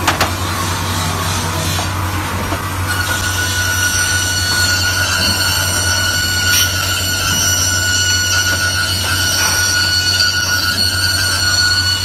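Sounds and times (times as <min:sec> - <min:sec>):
circular saw whine cutting metal: 0:02.7 - 0:12.0.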